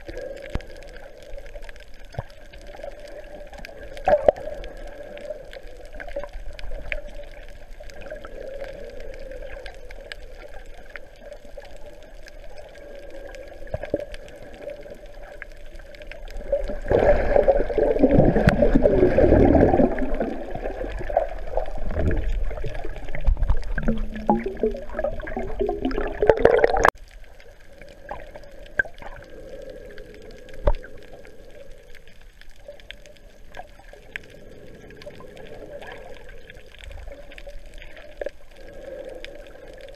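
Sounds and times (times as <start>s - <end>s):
faint ticks: 0.0s - 18.8s, 26.9s - 39.9s
muffled underwater wash: 0.0s - 39.9s.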